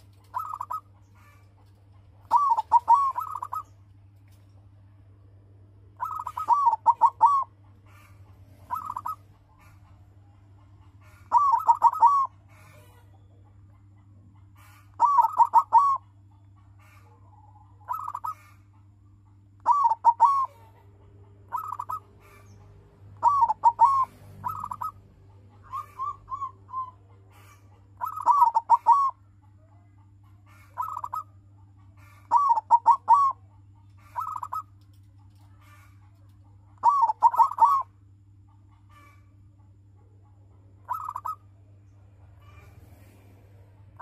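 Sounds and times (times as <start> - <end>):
dove cooing: 0.0 - 3.7, 6.0 - 10.0, 10.6 - 18.6, 19.6 - 38.0, 40.8 - 41.5.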